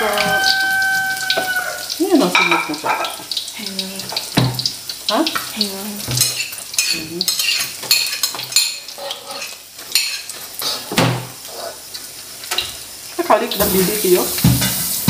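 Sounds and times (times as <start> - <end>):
fish sizzling in oil: 0.0 - 15.0
metal spatula scraping wok: 6.2 - 11.8.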